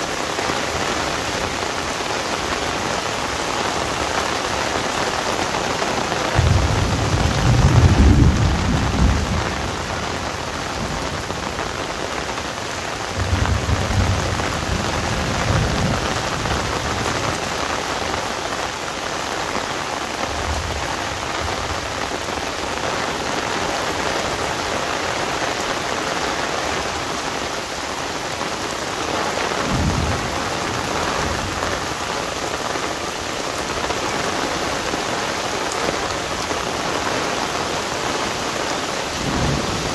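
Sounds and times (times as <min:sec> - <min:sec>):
heavy rain on an umbrella: 0:00.0 - 0:39.9
thunder rumbling: 0:05.9 - 0:18.2, 0:39.1 - 0:39.9.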